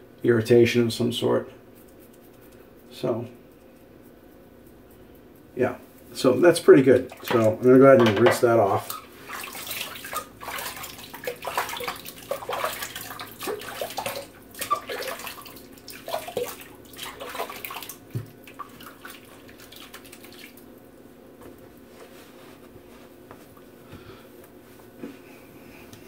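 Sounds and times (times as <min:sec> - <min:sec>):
water splashing: 0:06.7 - 0:20.6.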